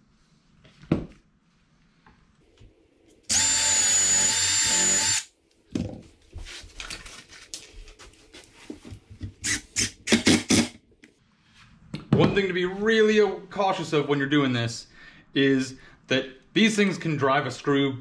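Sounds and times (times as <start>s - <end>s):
power drill driving a screw: 3.3s - 5.3s.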